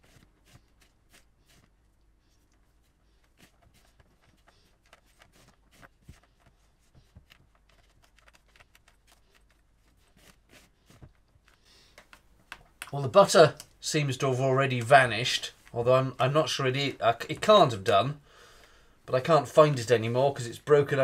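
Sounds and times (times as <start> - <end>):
hands rubbing butter into flour: 0.0 - 12.3.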